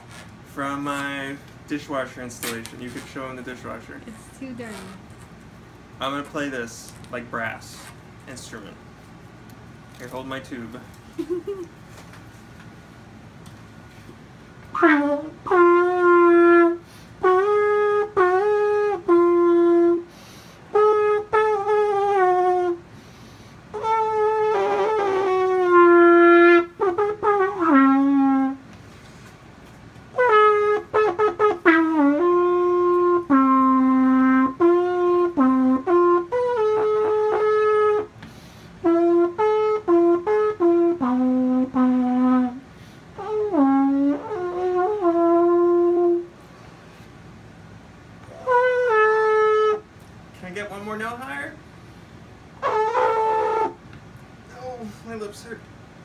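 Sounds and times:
brassy horn tone from hose: 14.7 - 23.1, 23.7 - 28.7, 30.2 - 47.1, 48.2 - 49.9, 52.6 - 53.8.

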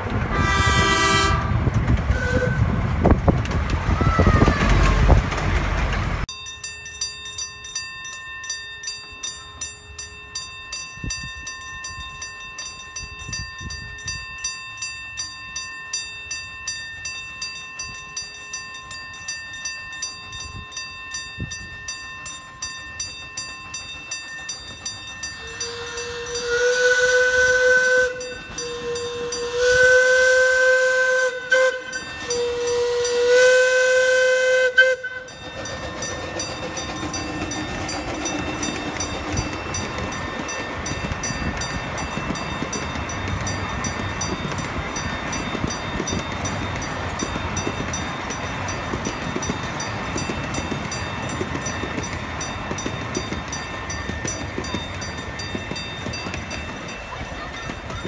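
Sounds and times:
train rumbling past: 0.0 - 8.0, 8.6 - 58.0
steam locomotive whistle: 0.3 - 2.8, 25.4 - 36.4
crossing gong bells ringing: 6.0 - 58.0.

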